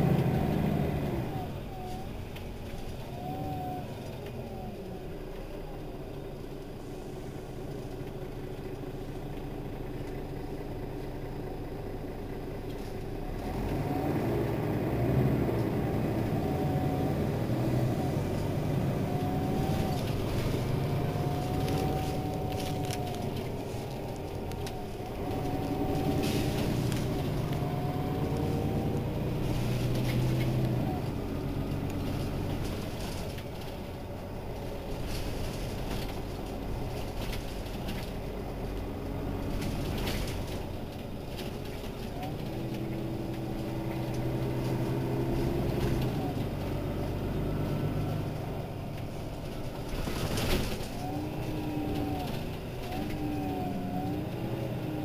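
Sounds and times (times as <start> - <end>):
bus diesel engine: 0.0 - 55.0
engine whine: 0.0 - 55.0.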